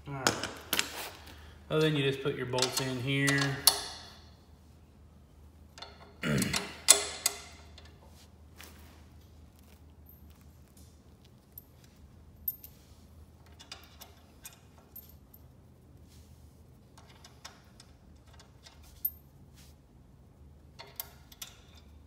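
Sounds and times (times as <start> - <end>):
metal bolts clicking: 2.5 - 4.3, 5.7 - 8.0, 17.0 - 19.1, 20.8 - 22.0.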